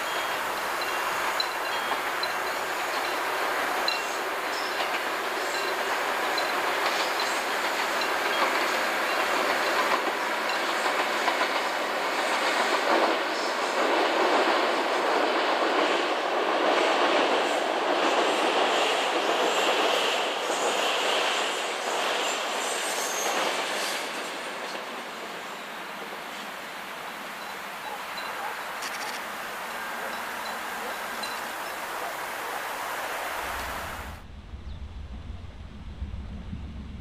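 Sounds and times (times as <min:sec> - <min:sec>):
train wheels clacking: 0:00.0 - 0:25.4
diesel train rumble: 0:33.3 - 0:37.0.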